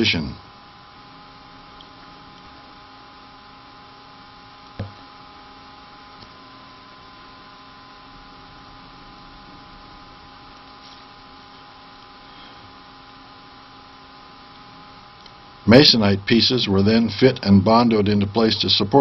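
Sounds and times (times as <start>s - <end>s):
steady electrical hum: 0.0s - 19.0s
short knock: 4.8s - 5.0s.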